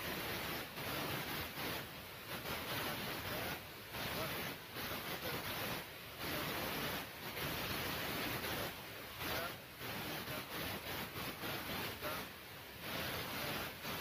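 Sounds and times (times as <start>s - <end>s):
loud hiss: 0.0s - 14.0s
faint man's voice: 11.4s - 12.3s.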